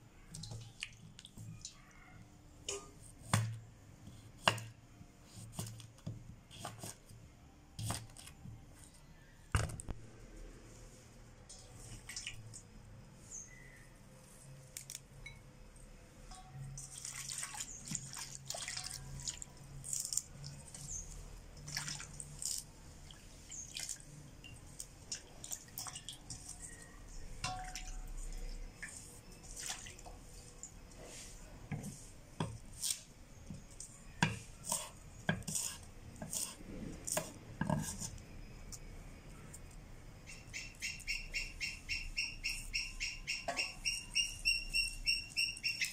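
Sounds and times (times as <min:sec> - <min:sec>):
water splashing and dripping: 0:00.3 - 0:01.8, 0:11.9 - 0:12.7, 0:16.3 - 0:26.8, 0:27.4 - 0:30.9
knife cutting on wooden board: 0:34.2 - 0:38.1.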